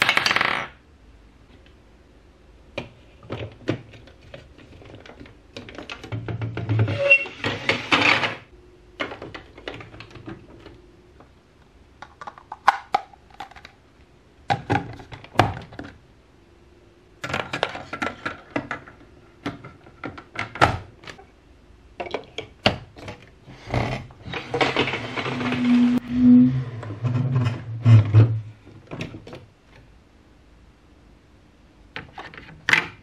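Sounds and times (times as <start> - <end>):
plastic blocks clacking and snapping: 0.0 - 0.8, 12.0 - 13.8, 17.2 - 21.2.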